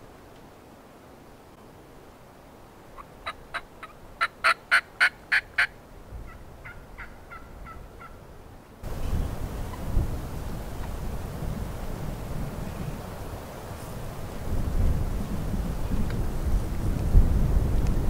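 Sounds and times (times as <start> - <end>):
turkey yelping: 3.0 - 8.2.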